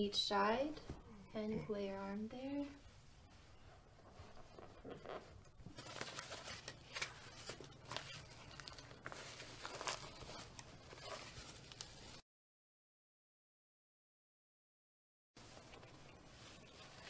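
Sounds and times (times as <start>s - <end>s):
rustling handling noise: 2.7s - 12.2s, 15.4s - 17.0s.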